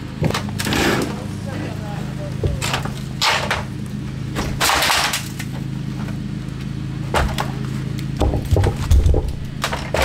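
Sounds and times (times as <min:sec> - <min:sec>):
knocks and clunks: 0:07.1 - 0:07.6, 0:08.2 - 0:10.0
crumbling board scraping crunch: 0:08.2 - 0:10.0.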